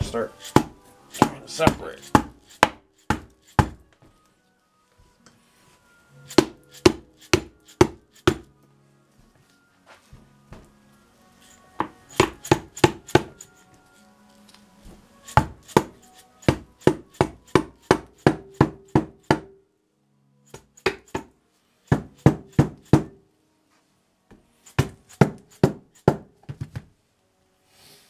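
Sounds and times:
rubber mallet tapping metal shaft: 0.4 - 3.8, 6.3 - 8.5.

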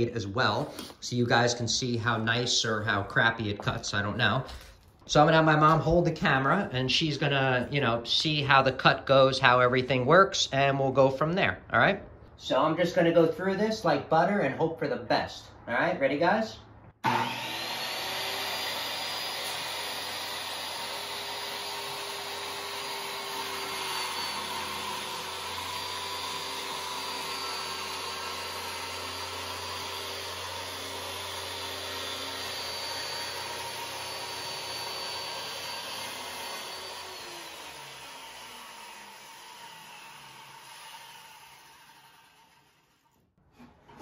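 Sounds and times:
saw motor winding down: 17.0 - 43.2
circular saw whining: 17.0 - 43.7.

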